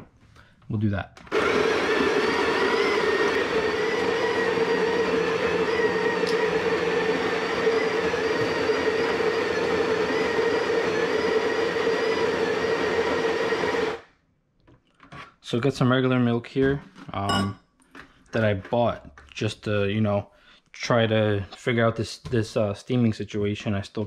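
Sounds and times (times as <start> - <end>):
coffee grinder motor whine: 1.3 - 14.0.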